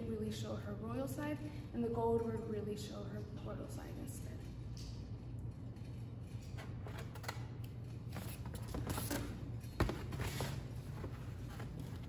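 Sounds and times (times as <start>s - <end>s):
steady low hum: 0.0s - 12.0s
small clicks and rustles: 4.2s - 9.2s.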